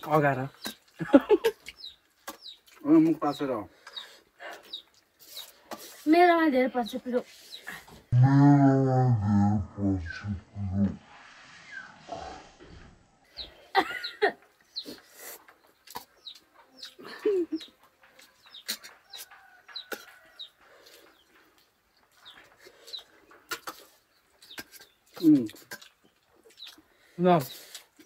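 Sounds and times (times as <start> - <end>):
chickens clucking: 13.3 - 27.0.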